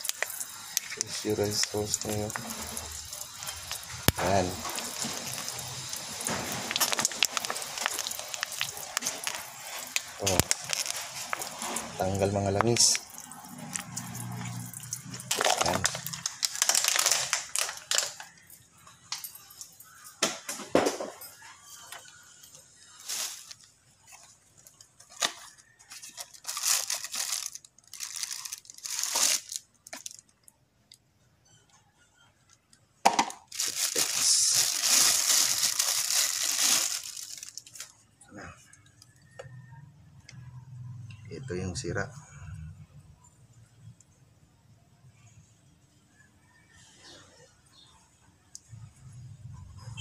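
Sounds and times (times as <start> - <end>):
cardboard packaging tearing: 0.0 - 13.1, 15.2 - 18.2, 23.0 - 23.6, 25.1 - 30.2, 33.5 - 37.9
water splashing from bottle: 0.0 - 18.1
plastic wrap crinkling: 0.0 - 18.6, 22.8 - 30.6, 32.5 - 38.0.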